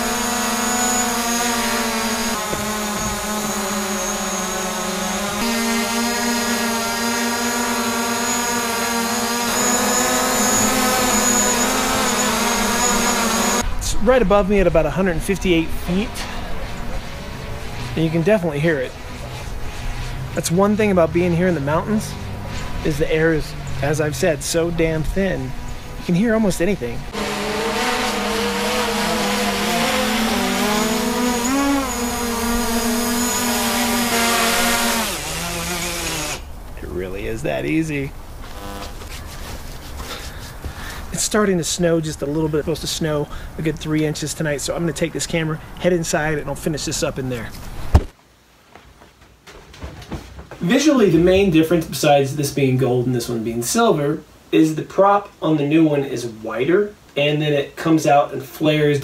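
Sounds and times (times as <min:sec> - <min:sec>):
drone buzzing hum: 0:00.0 - 0:16.2, 0:24.4 - 0:36.6, 0:38.1 - 0:39.1
high propeller whine: 0:00.0 - 0:41.7.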